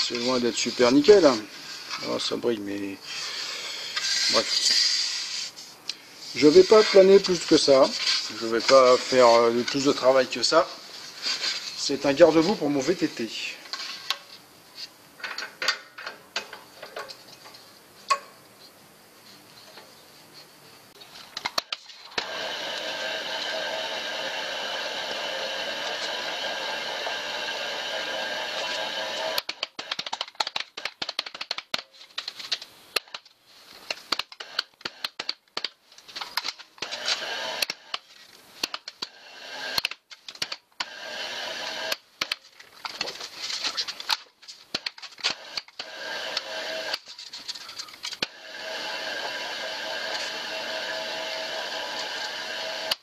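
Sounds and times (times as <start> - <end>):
rapid irregular metal clicks and rattles: 29.4 - 33.3.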